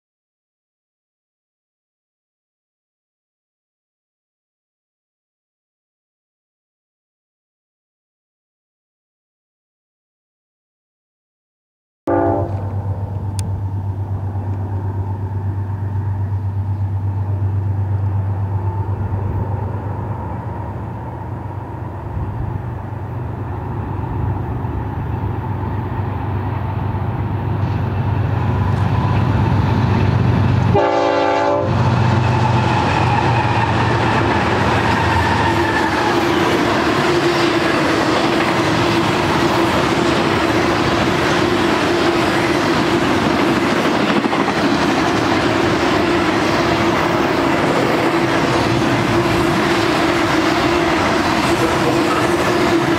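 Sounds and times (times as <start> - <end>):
train horn blast: 12.1 - 12.8, 30.7 - 33.8
diesel locomotives running: 12.1 - 52.9
rolling freight cars: 12.1 - 52.9.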